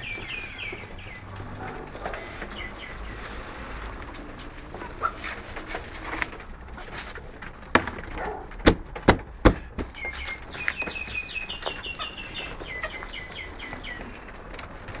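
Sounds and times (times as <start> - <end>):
chickens calling: 0.0 - 8.7, 9.3 - 15.0
sharp knocks: 7.7 - 10.2.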